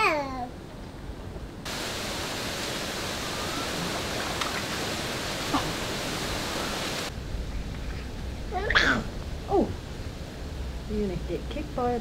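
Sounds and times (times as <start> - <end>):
running water rushing: 1.6 - 7.2.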